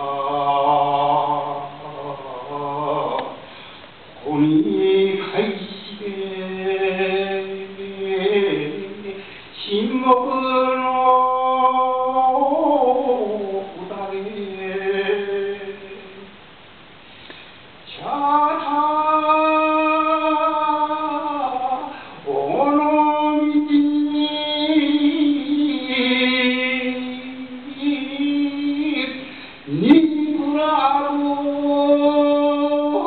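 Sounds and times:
man chanting a poem: 0:04.2 - 0:16.2.

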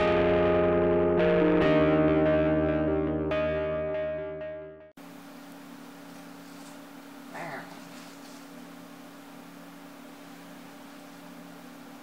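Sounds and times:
electrical hum with hiss: 0:05.0 - 0:12.0.

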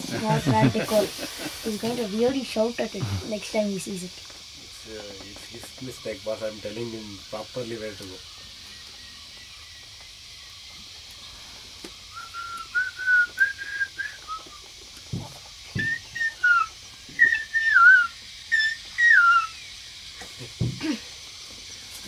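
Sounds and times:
person whistling: 0:12.1 - 0:14.6, 0:15.8 - 0:19.5.

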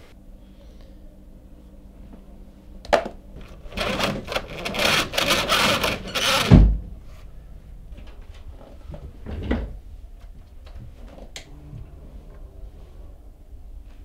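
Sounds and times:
roller shutter rattling: 0:03.4 - 0:06.7.

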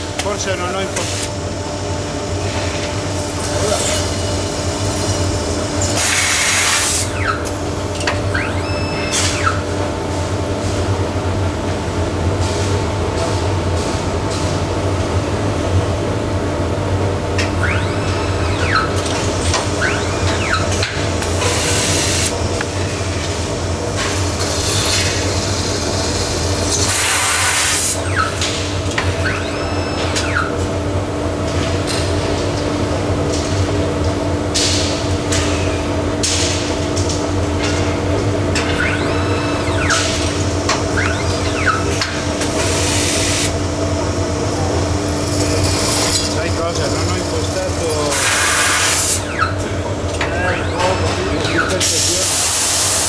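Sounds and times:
machine hum: 0:00.0 - 0:53.0
pneumatic hiss bursts: 0:06.0 - 0:07.2, 0:26.8 - 0:28.0, 0:48.1 - 0:49.2
falling machine whines: 0:17.4 - 0:22.4, 0:26.6 - 0:30.6, 0:38.5 - 0:43.6.

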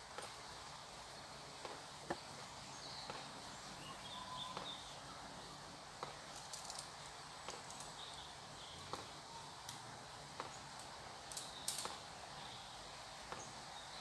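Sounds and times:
faint steady hiss: 0:00.0 - 0:14.0
faint bird chirps: 0:02.7 - 0:05.5, 0:07.9 - 0:09.6.

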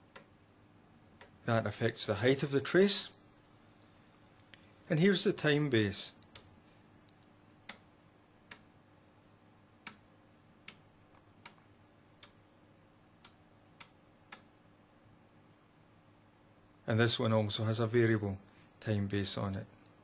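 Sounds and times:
rotary switch clicking: 0:01.2 - 0:01.4, 0:10.6 - 0:11.6.

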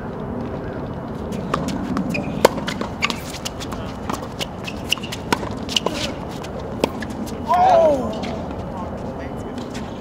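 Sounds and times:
shoe squeaks: 0:00.6 - 0:10.0
tennis ball hit with rackets: 0:01.4 - 0:07.1.

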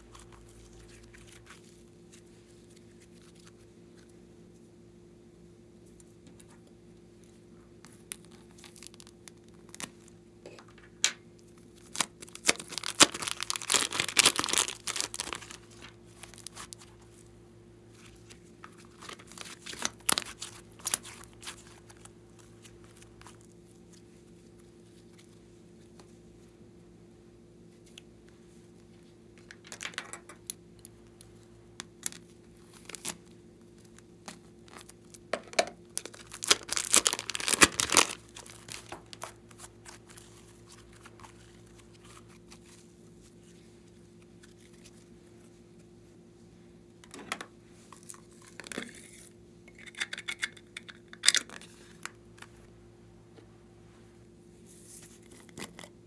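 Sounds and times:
slime crinkling and crackling: 0:00.0 - 0:04.1, 0:07.8 - 0:10.2, 0:11.6 - 0:17.2, 0:17.9 - 0:25.4, 0:29.4 - 0:43.6
faint steady hum: 0:00.0 - 0:56.0.

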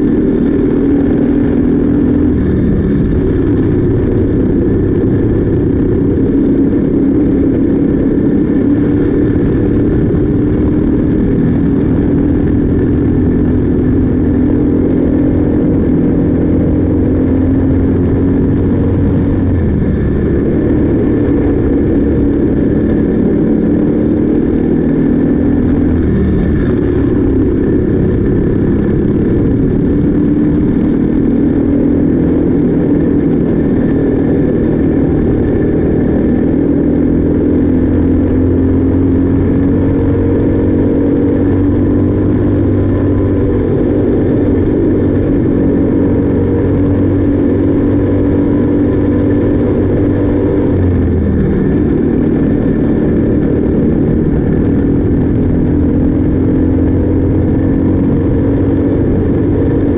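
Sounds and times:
kart engine running: 0:00.0 - 0:59.9.

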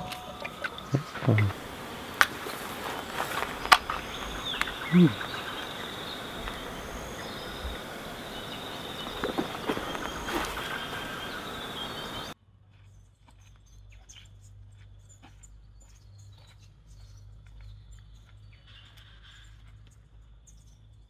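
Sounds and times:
steady noise with high whine: 0:00.0 - 0:12.4
faint bird chirps: 0:00.0 - 0:21.0
soft scattered ticks: 0:00.0 - 0:21.0.

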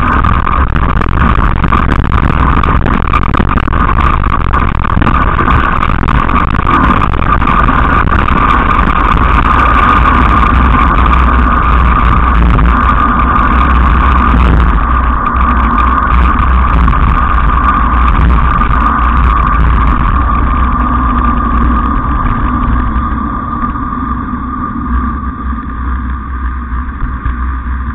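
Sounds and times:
constant whine: 0:00.0 - 0:27.9
small wheels rolling on asphalt: 0:00.0 - 0:27.9
wind buffeting microphone: 0:00.0 - 0:27.9.

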